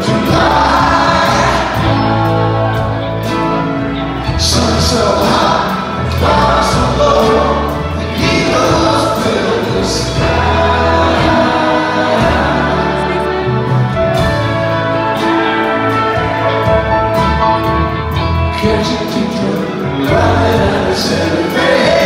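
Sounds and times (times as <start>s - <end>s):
people singing: 0.0s - 3.4s, 4.1s - 13.5s, 18.5s - 22.0s
drums: 0.0s - 22.0s
electric guitar: 0.0s - 22.0s
orchestral strings: 0.0s - 22.0s
piano: 0.0s - 22.0s
upright bass: 0.0s - 22.0s.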